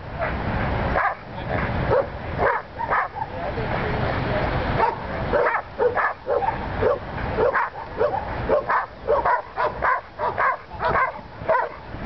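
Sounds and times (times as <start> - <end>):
dog yipping: 1.9 - 3.4, 4.8 - 11.8.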